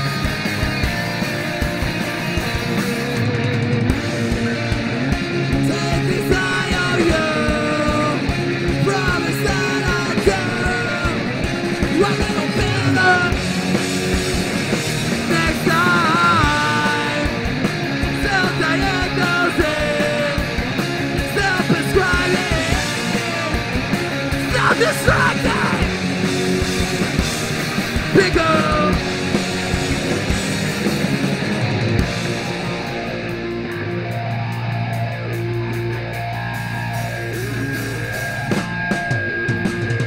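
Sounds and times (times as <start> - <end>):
punk rock band playing live: 0.0 - 40.0
person yelling vocals: 11.9 - 13.4, 21.2 - 23.7, 24.4 - 26.0, 28.1 - 29.0.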